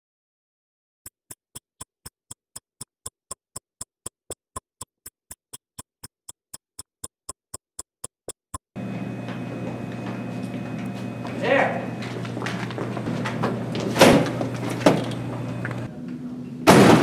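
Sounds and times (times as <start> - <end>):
sharp ticking: 1.0 - 8.8
room noise with low hum: 8.8 - 17.0.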